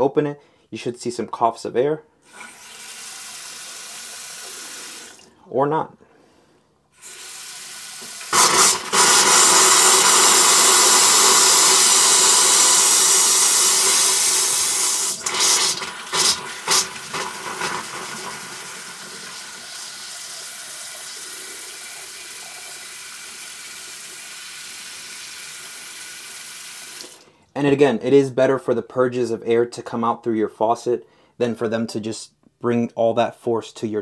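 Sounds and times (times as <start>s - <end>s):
air hissing and sputtering from faucet: 2.3s - 5.3s, 7.0s - 27.2s
faucet running into sink: 7.0s - 27.2s.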